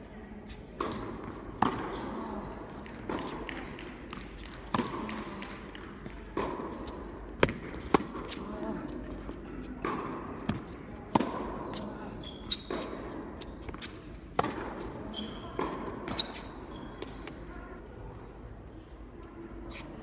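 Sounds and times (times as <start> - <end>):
rackets striking tennis ball: 0.8 - 11.9
shoe squeaks: 7.8 - 8.7, 11.7 - 14.2, 14.8 - 17.3.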